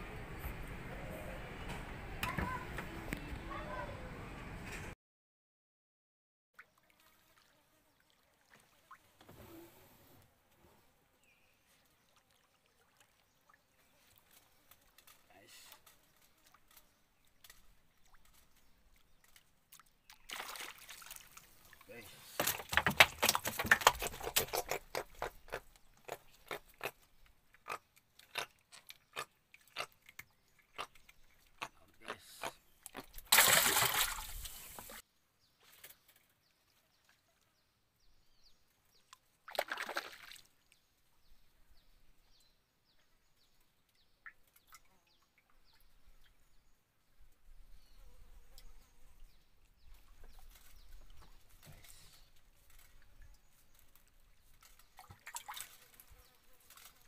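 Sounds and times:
water splash: 20.1s - 21.8s, 33.2s - 35.0s, 39.5s - 40.5s.

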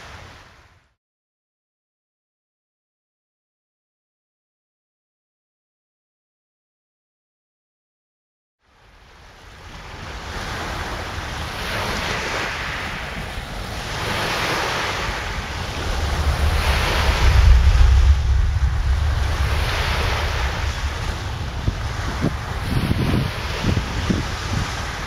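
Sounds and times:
waves breaking on shore: 0.0s - 0.9s, 8.6s - 25.0s
wind buffeting microphone: 9.7s - 25.0s.

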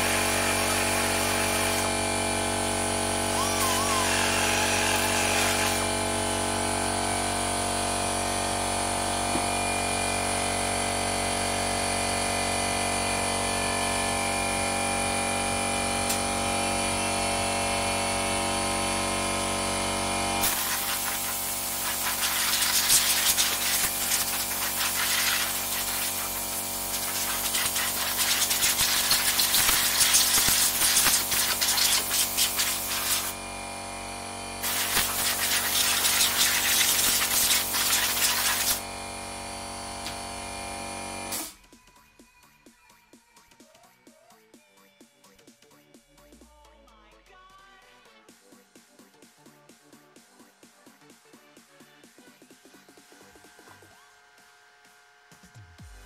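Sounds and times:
vacuum cleaner motor running: 0.0s - 41.6s
hissing and scraping: 34.6s - 38.8s.

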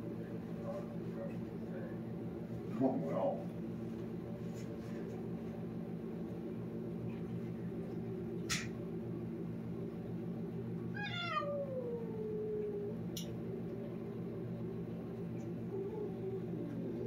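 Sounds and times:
low background hum: 0.0s - 17.0s
cat meowing: 10.9s - 12.8s.

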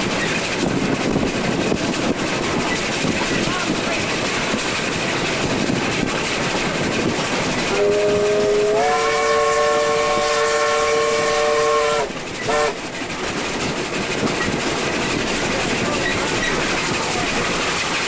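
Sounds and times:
train running with wheel clatter: 0.0s - 18.0s
steam locomotive whistle: 7.7s - 12.8s.

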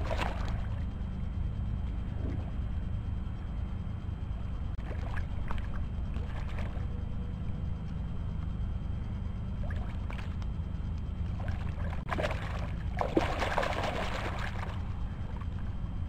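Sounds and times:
low rumble: 0.0s - 16.0s
fish splashing in water: 11.4s - 14.8s.

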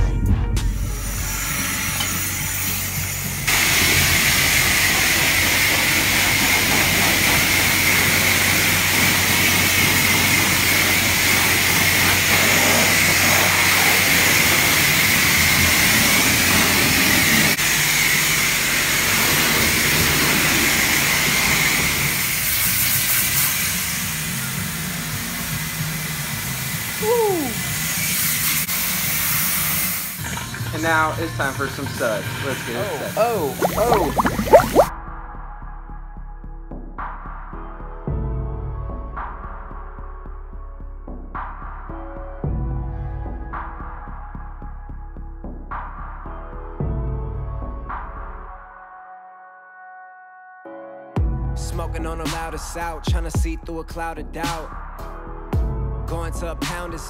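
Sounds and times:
pressure washer spraying car: 3.5s - 17.6s.

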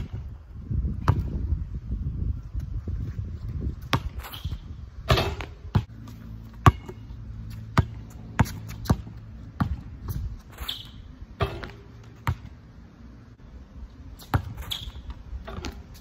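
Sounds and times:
basketball bouncing on concrete: 1.0s - 1.5s, 3.8s - 12.7s, 14.2s - 16.0s.

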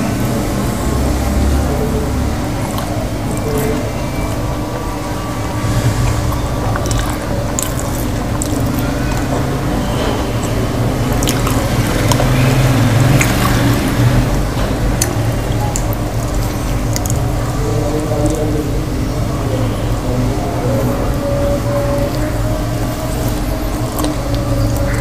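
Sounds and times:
low hum: 0.0s - 25.0s
wet food squelches: 6.0s - 17.3s.

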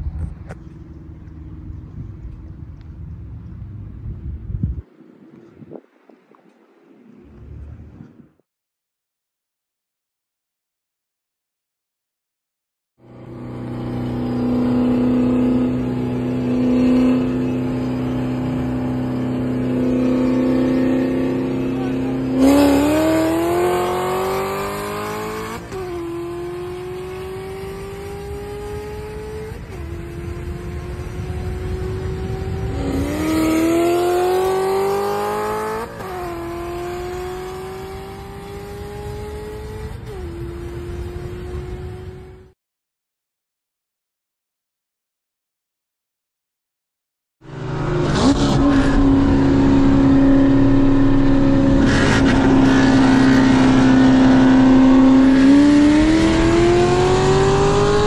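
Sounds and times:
car engine accelerating: 13.0s - 42.5s, 47.4s - 58.0s.

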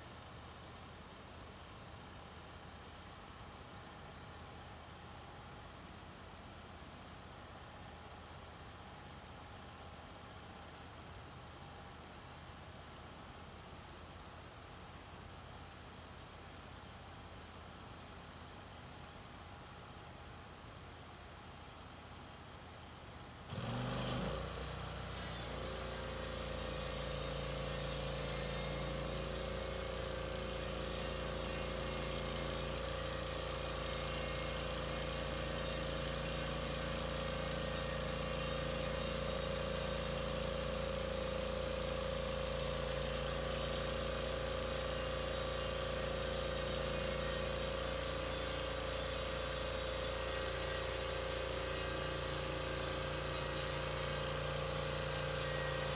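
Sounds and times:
bandsaw mill engine running: 23.5s - 55.9s.

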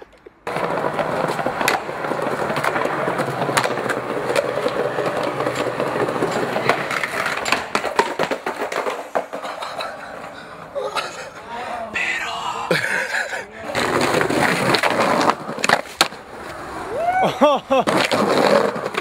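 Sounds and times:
skateboard clacks and knocks: 0.0s - 11.2s, 13.6s - 16.8s, 17.7s - 19.0s
skateboard wheels rolling on concrete: 0.0s - 19.0s.

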